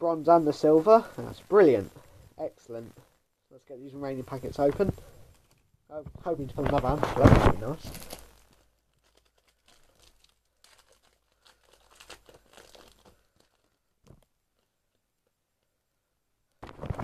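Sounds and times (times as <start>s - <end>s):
card packets tearing and crinkling: 4.2s - 14.7s.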